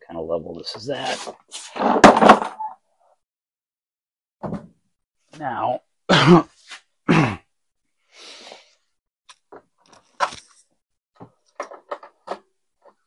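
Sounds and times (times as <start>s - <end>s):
breathy exhale: 8.1s - 8.8s.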